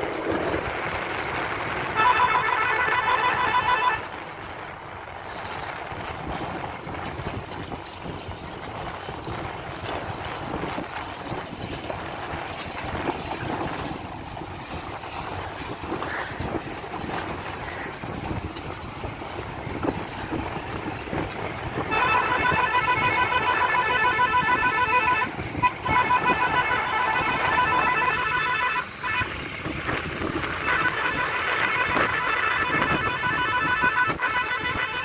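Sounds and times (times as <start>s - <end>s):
vehicle engine running: 0.0s - 35.0s.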